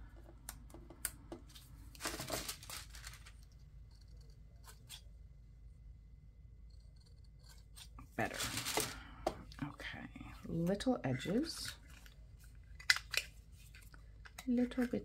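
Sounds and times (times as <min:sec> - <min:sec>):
paper rustling: 0:01.5 - 0:03.5, 0:08.2 - 0:09.1.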